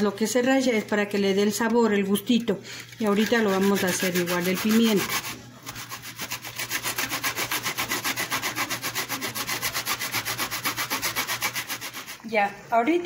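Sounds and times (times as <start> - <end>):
pepper rasping on metal grater: 2.9 - 12.2.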